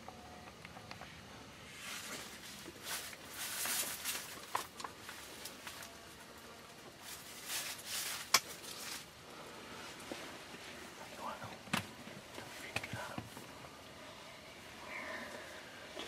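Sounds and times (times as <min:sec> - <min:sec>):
people rustling and shuffling: 0:01.7 - 0:13.7.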